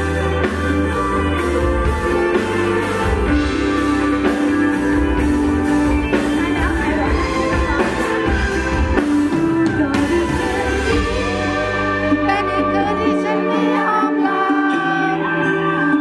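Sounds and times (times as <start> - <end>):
live pop-rock band: 0.0 - 16.0
woman singing: 6.1 - 16.0.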